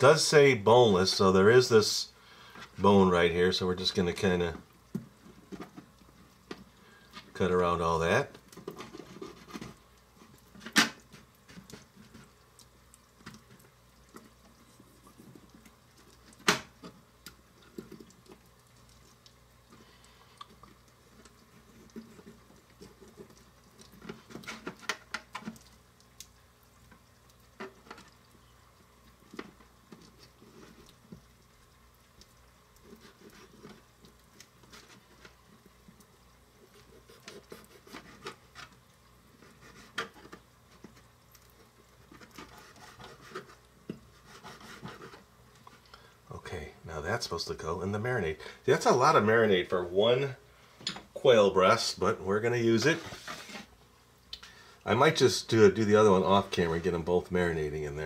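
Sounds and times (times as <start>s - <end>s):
soft wet handling sounds: 0.0s - 58.0s
knife cutting and scraping meat: 42.1s - 45.3s.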